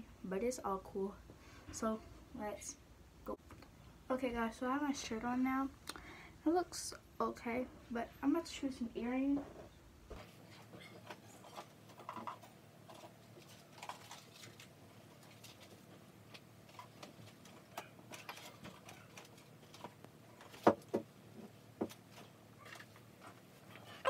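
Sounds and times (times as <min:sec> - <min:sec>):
small objects clicking and rustling: 0:11.0 - 0:20.9.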